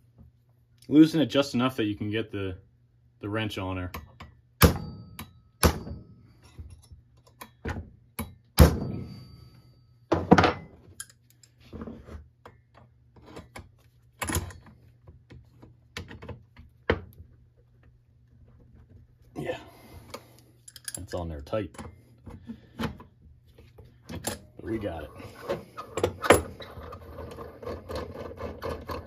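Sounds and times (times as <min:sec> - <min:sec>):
hammer tapping metal punch: 0:03.9 - 0:06.2.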